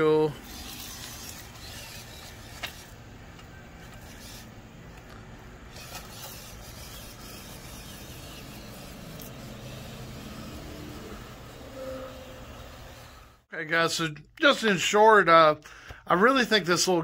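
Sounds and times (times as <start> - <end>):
electric motor whirring: 0.0 - 5.1, 5.7 - 13.4.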